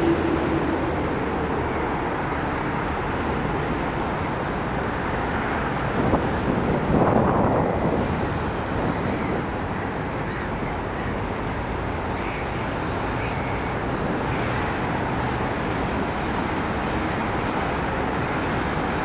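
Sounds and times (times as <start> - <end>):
diesel locomotive engine droning: 0.0 - 19.0.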